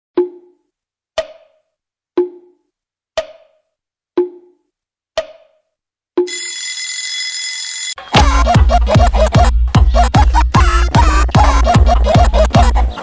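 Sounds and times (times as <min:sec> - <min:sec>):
bell ringing: 0:06.3 - 0:08.2.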